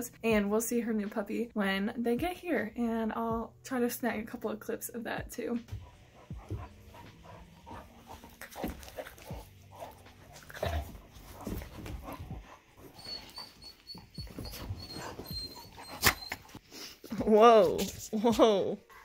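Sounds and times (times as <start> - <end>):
puppy vocal sounds: 5.7 - 16.6
puppies scuffling: 5.8 - 16.6.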